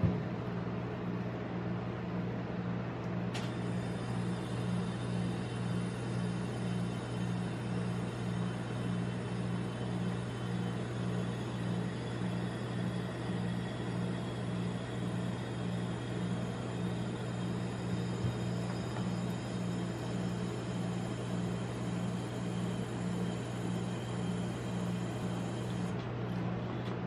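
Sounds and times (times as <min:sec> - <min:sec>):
pulsing low hum: 0:03.5 - 0:26.0.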